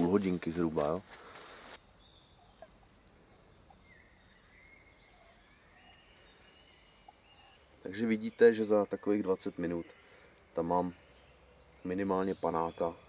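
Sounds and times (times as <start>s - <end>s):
brief rustle: 0.0s - 1.8s
faint distant bird calls: 0.0s - 13.0s.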